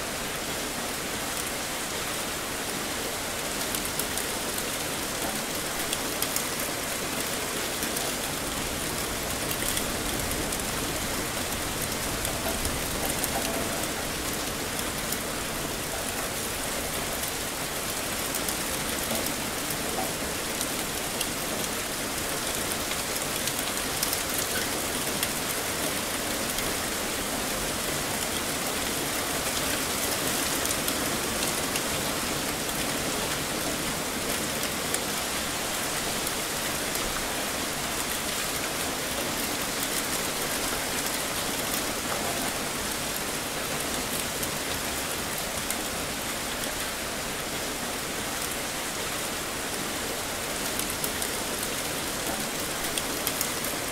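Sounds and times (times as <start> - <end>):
heavy rain falling: 0.0 - 53.9
raindrop ticks: 3.7 - 17.3, 18.2 - 21.8, 22.5 - 26.7.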